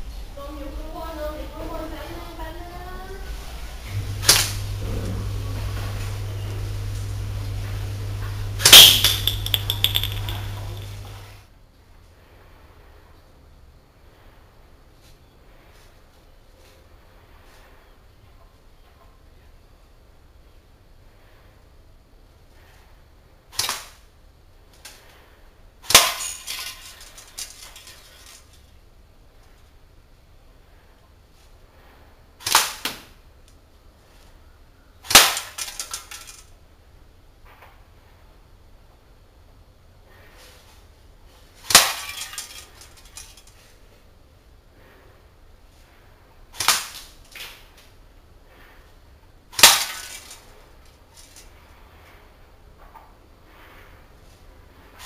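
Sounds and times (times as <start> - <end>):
pellet cracking on hanging target: 3.9 - 4.7, 8.6 - 11.2, 23.6 - 24.0, 25.8 - 26.9, 32.4 - 33.1, 35.0 - 36.0, 41.6 - 42.7, 46.5 - 47.2, 49.5 - 50.3
airsoft gun shots: 4.2 - 4.6
small clicks and rattles: 8.6 - 11.3, 26.2 - 28.8, 35.5 - 36.5, 42.0 - 43.8.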